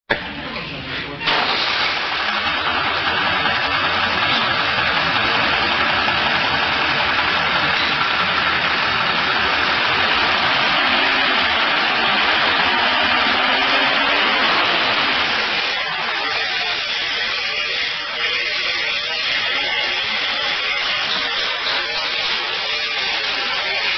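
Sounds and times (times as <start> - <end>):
car engine idling: 1.3 - 16.2.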